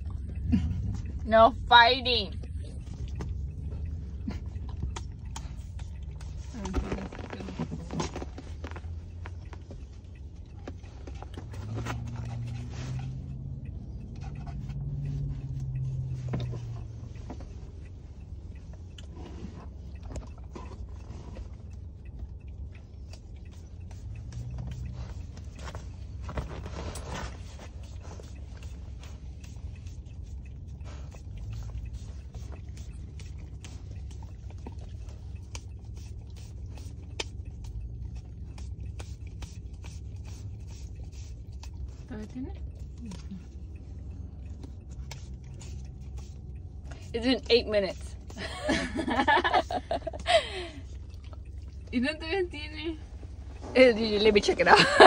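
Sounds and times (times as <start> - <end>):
low steady rumble: 0.0 - 55.0
steady low hum: 0.0 - 55.0
puppy lapping and smacking: 2.4 - 54.4
dog licking wetly: 27.4 - 48.5.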